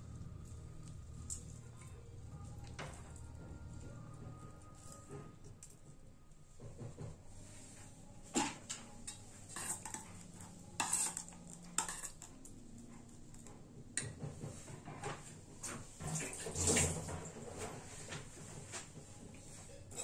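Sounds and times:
kitchen utensils clattering: 0:08.4 - 0:12.4, 0:16.0 - 0:18.0, 0:19.6 - 0:20.0.

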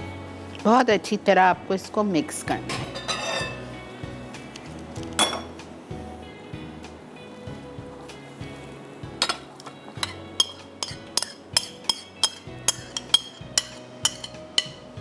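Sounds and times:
metal spoon clinking against bowls: 0:02.9 - 0:03.6, 0:10.0 - 0:14.9.

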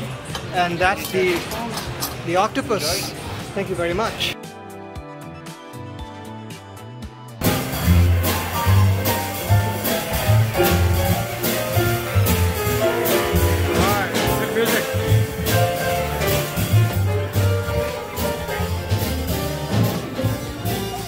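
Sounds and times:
piano: 0:04.3 - 0:21.0
upright bass walking: 0:07.4 - 0:21.0.

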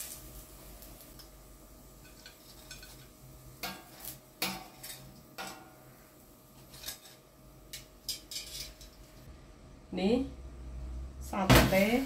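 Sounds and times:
utensils clinking on grill plate: 0:02.0 - 0:05.8, 0:06.6 - 0:09.3.

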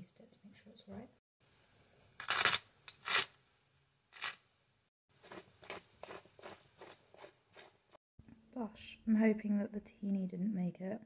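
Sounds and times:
pepper mill grinding: 0:02.2 - 0:03.3, 0:05.2 - 0:07.8.

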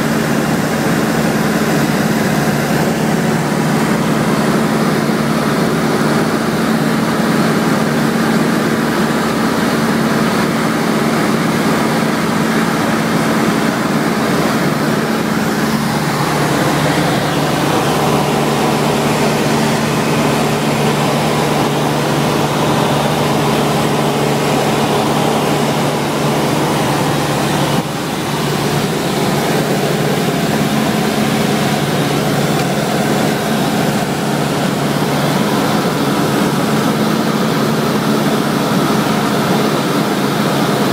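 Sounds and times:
airplane engine droning in cabin: 0:00.0 - 0:40.9.

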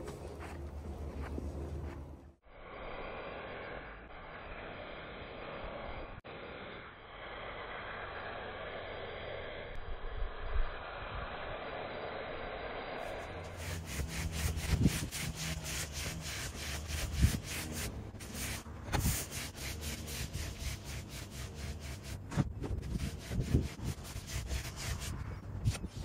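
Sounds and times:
pressure washer spray hiss: 0:02.6 - 0:22.1.

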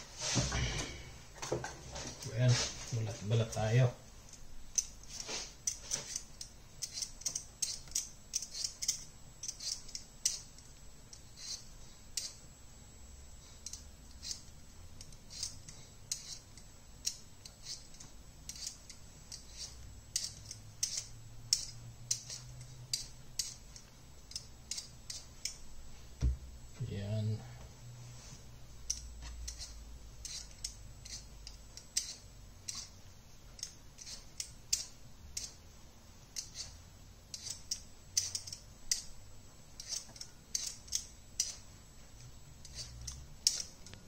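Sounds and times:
blade scraping potato skin: 0:05.0 - 0:10.6, 0:11.2 - 0:12.4, 0:13.6 - 0:23.6, 0:29.0 - 0:33.0, 0:36.4 - 0:39.1, 0:39.8 - 0:41.7, 0:42.6 - 0:44.0.

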